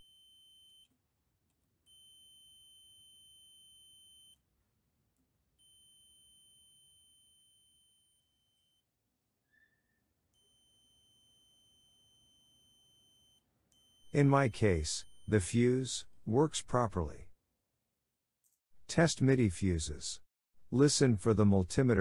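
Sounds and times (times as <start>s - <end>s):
multimeter continuity beep: 0.0s - 0.9s, 1.9s - 4.4s, 5.6s - 8.8s, 10.4s - 15.4s.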